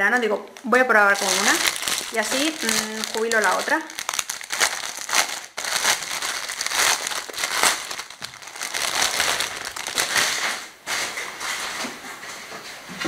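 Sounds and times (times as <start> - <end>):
packaging crinkling: 0.6 - 11.0.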